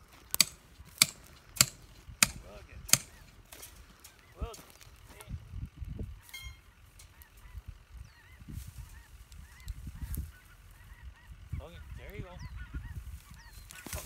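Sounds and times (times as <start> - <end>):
honking calls: 6.1 - 14.0.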